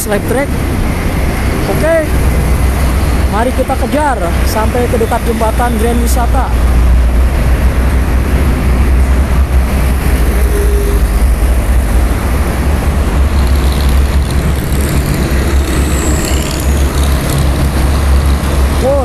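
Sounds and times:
heavy traffic rumble: 0.0 - 19.0.

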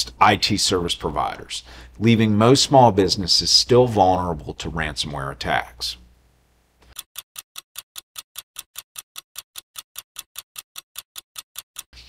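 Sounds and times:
clock-like ticking: 6.9 - 11.9.

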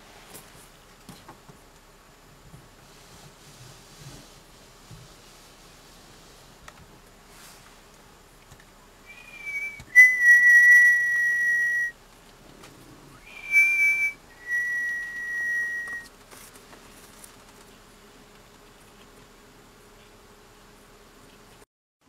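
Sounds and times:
person whistling: 9.1 - 11.9, 13.2 - 16.1.

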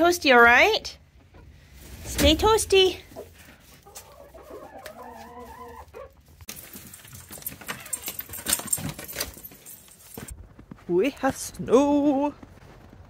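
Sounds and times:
dogs' feet on wooden steps: 6.5 - 10.3
metallic jangle: 6.5 - 10.3.

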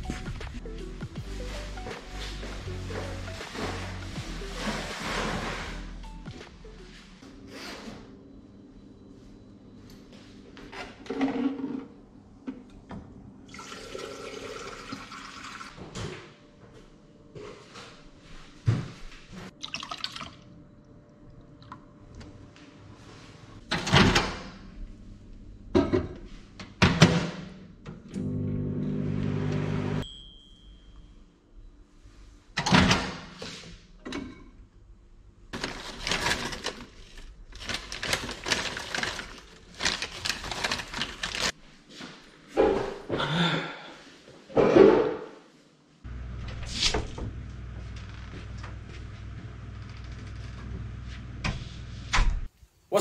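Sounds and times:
soft background music: 0.0 - 10.3
milk pouring into a bowl: 19.6 - 20.4.

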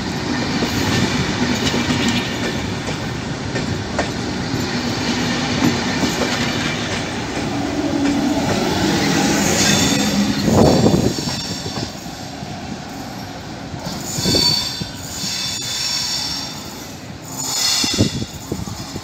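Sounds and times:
train wheels squealing: 8.5 - 19.0.

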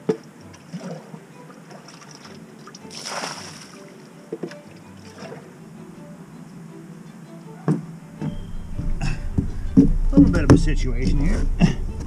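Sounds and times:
water sloshing and splashing: 0.0 - 5.7
sharp knocks: 7.7 - 11.5.

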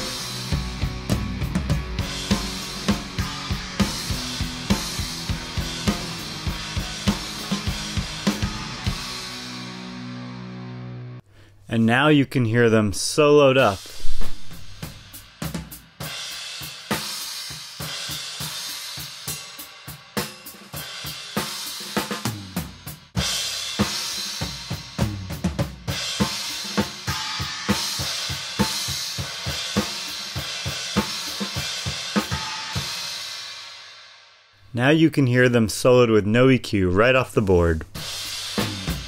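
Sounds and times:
snare and kick drum beat: 0.0 - 9.2, 14.0 - 33.2, 38.0 - 39.0
cymbals: 13.7 - 22.6, 25.9 - 34.5, 38.0 - 39.0.

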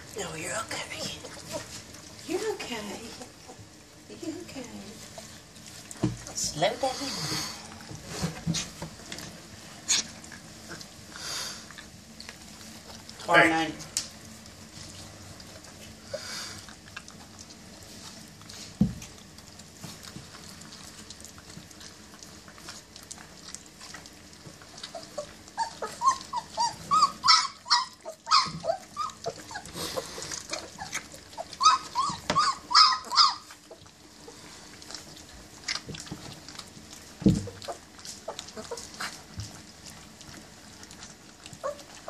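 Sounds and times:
puppies whining and yelping: 14.7 - 18.6, 19.4 - 42.0.

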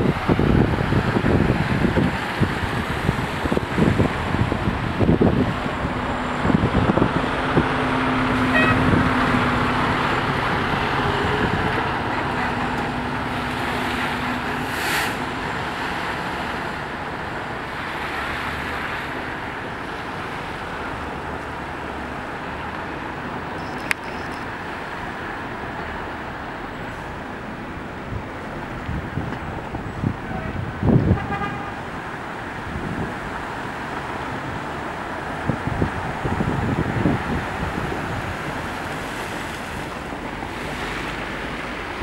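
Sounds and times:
car engine hum: 0.0 - 31.0
tyres swishing through water: 0.0 - 42.0
brief hiss: 14.7 - 15.3.

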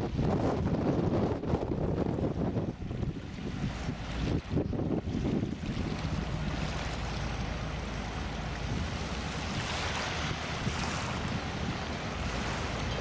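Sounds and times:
low steady engine hum: 0.0 - 13.0
wind on microphone: 0.0 - 13.0
waves washing onto shingle beach: 3.1 - 13.0.

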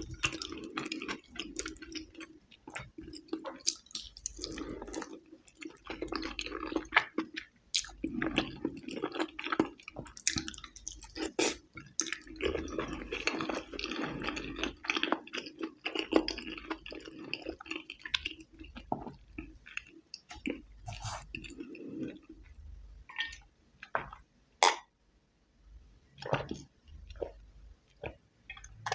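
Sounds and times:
mouth clicks: 24.6 - 24.8.

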